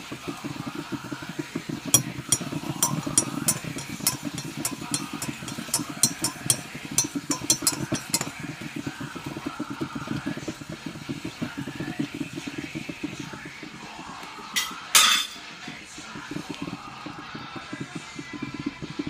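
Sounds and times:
spoon clinking in ceramic mug: 0:02.0 - 0:08.5.

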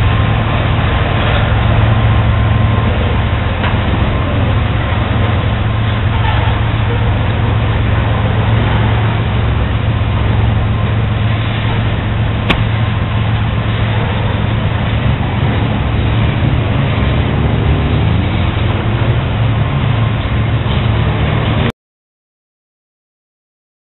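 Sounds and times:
train wheels rumbling on rails: 0:00.0 - 0:21.7
sharp click: 0:12.5 - 0:12.7.

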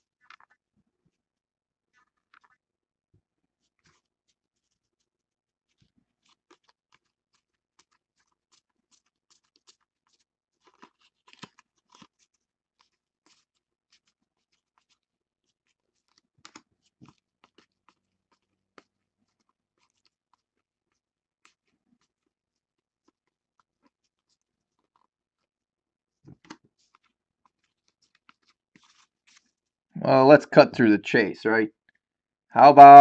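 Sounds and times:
trading cards flicking and rustling: 0:05.7 - 0:20.6, 0:21.4 - 0:22.3, 0:26.3 - 0:29.6.

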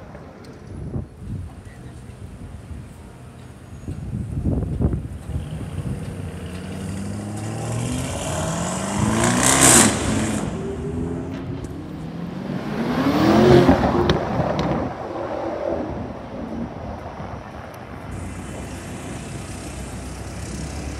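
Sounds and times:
car engine accelerating hard: 0:05.3 - 0:16.2, 0:18.2 - 0:20.9.

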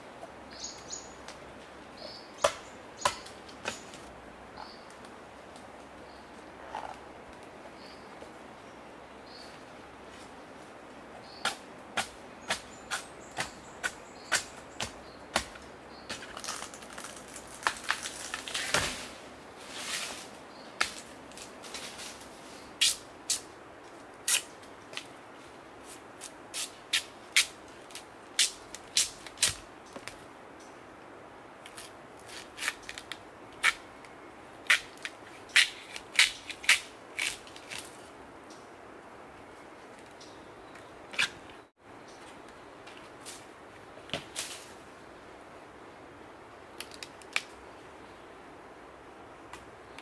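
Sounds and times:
machete striking wood: 0:02.4 - 0:03.8
rustling and tearing noise: 0:16.2 - 0:23.5.

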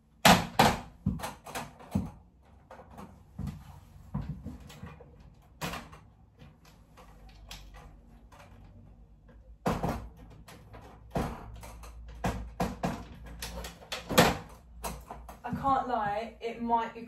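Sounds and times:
wooden shutters knocking: 0:09.6 - 0:15.7.

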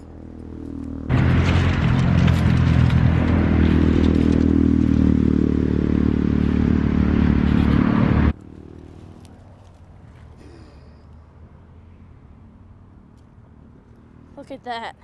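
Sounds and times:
vehicle engine running: 0:00.0 - 0:10.3.

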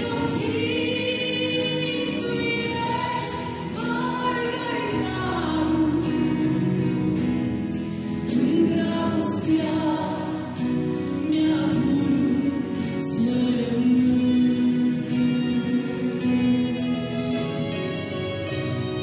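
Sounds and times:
woman and man singing duet: 0:00.0 - 0:07.0, 0:08.1 - 0:18.0.

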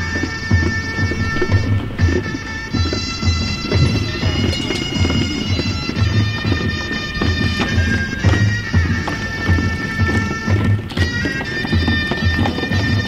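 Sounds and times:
bagpipe music: 0:00.0 - 0:13.0
regular low beat: 0:00.8 - 0:06.0.

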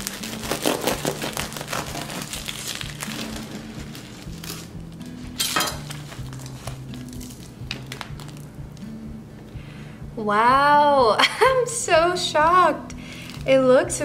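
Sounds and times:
crust crackling and crunching: 0:00.0 - 0:08.5
soft background music: 0:00.0 - 0:14.0
knife sawing through bread crust: 0:00.1 - 0:04.7.

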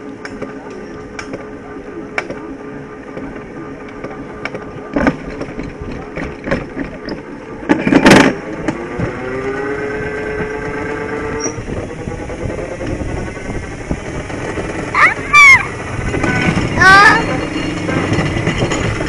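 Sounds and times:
coaster sled clicking and rattling: 0:00.0 - 0:19.0
wheel hum rising in pitch: 0:00.0 - 0:19.0.

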